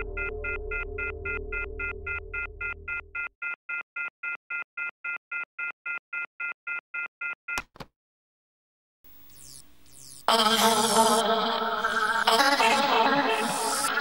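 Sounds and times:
low music drone: 0.0s - 3.1s
rapid electronic beeping: 0.0s - 3.6s, 9.3s - 10.3s.

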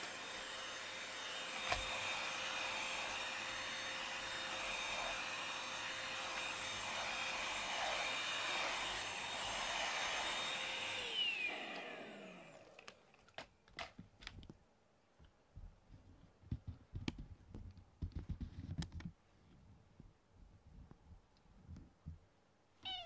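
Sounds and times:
stick vacuum cleaner whining: 0.0s - 13.5s.

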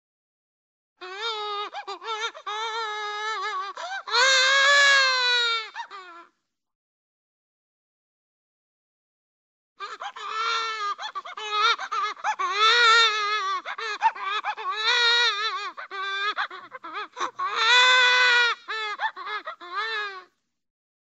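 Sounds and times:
cartoon baby crying: 1.0s - 6.3s, 9.8s - 20.3s.

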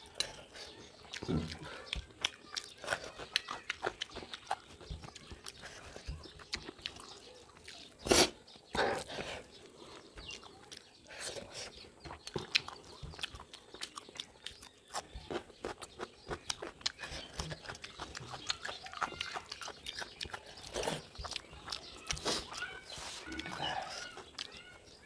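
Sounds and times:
wet lip smacks while chewing: 11.6s - 24.6s.

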